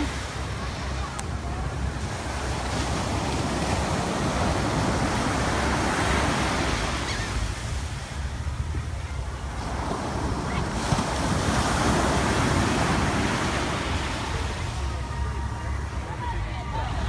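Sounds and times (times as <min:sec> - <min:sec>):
ocean surf breaking: 0:00.0 - 0:17.0.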